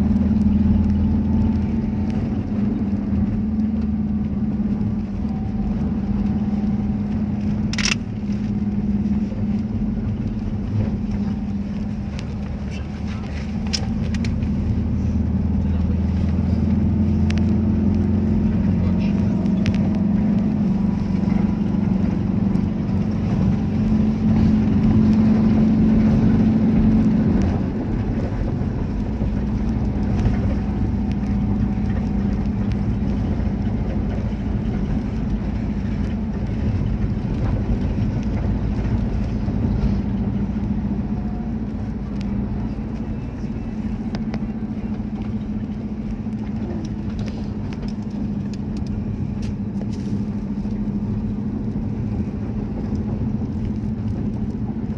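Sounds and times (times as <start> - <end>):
car engine drone: 0.0 - 54.9
road noise: 0.0 - 54.9.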